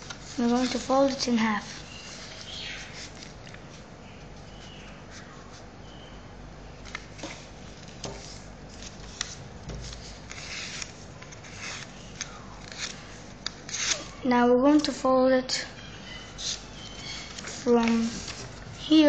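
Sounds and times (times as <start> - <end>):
paper rustling: 0.0 - 5.7, 6.8 - 14.2, 16.3 - 19.0
soft paper crackles and taps: 6.8 - 11.4.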